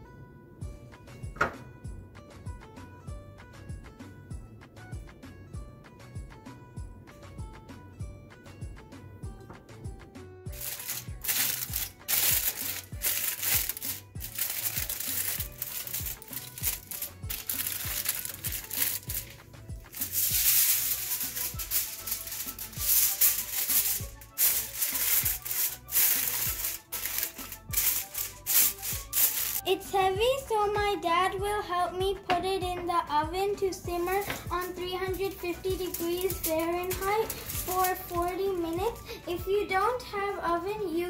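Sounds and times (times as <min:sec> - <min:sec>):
background music with beat: 0:00.6 - 0:39.7
aluminium foil crinkling: 0:10.5 - 0:29.7, 0:34.0 - 0:39.3.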